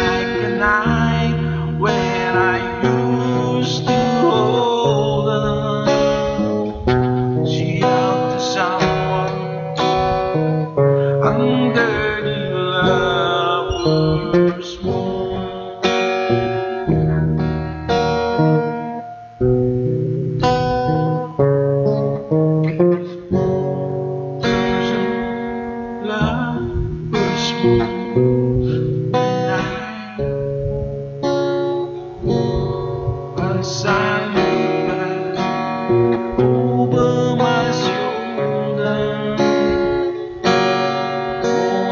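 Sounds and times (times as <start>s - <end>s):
man singing: 0.0s - 15.9s, 24.4s - 30.5s, 32.3s - 41.9s
acoustic guitar strumming: 0.0s - 41.9s.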